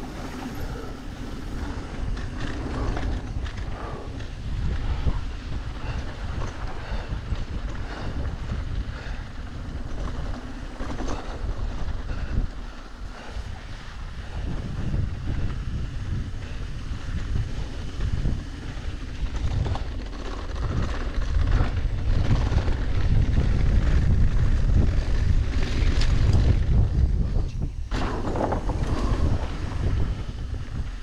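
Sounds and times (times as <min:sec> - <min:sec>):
bike tyres rolling on dirt: 0:00.0 - 0:31.0
wind buffeting microphone: 0:00.0 - 0:31.0.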